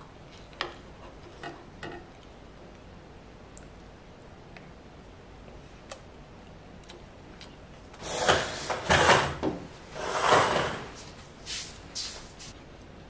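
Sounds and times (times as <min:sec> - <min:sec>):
loud sliding scrapes: 0:08.0 - 0:11.7.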